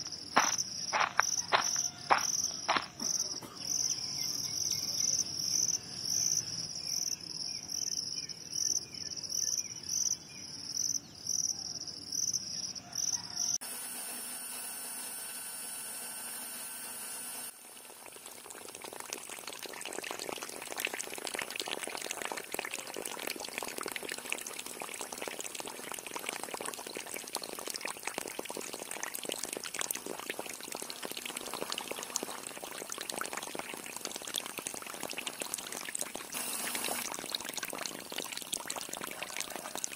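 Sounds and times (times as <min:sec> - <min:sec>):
crickets chirping: 0:00.0 - 0:13.2.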